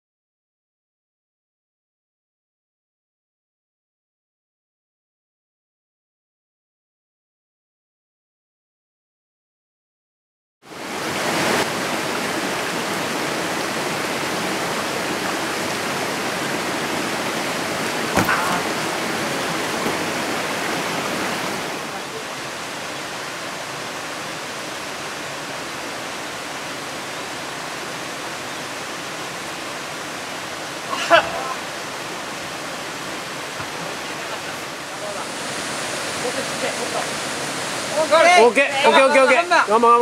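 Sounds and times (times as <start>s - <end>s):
stream rushing over rocks: 10.7s - 40.0s
brief knock: 18.2s - 18.6s.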